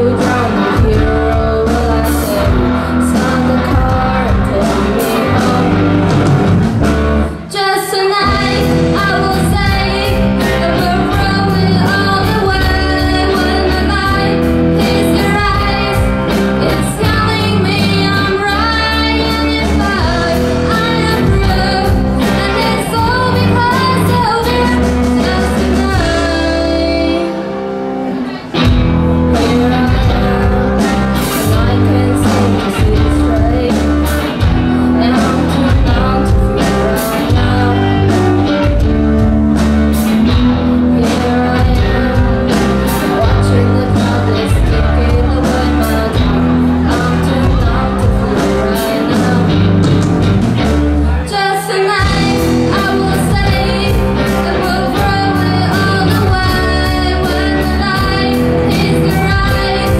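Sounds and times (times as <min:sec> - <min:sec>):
woman singing: 0:00.0 - 0:06.6, 0:07.2 - 0:59.9
live rock band playing: 0:00.0 - 0:59.9.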